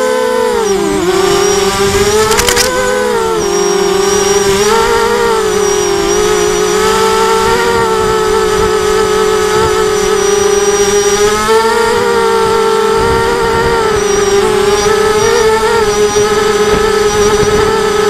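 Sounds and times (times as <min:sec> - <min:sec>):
quadcopter motors whining: 0:00.0 - 0:18.0.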